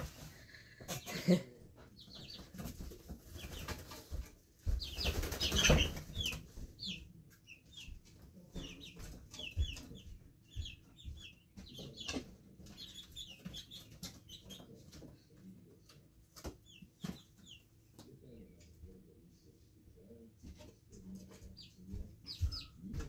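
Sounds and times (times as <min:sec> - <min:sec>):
chicks peeping: 0:00.0 - 0:23.0.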